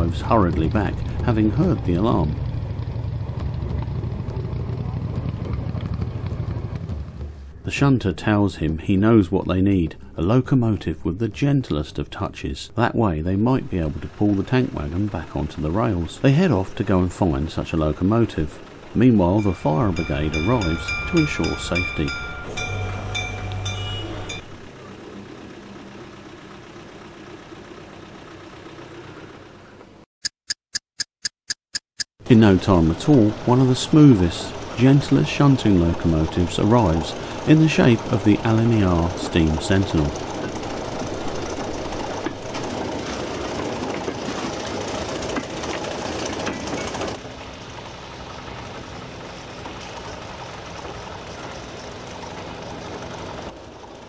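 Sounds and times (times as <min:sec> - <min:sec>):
low engine hum: 0:00.0 - 0:30.0, 0:32.2 - 0:54.0
fire engine bell ringing: 0:19.3 - 0:24.6.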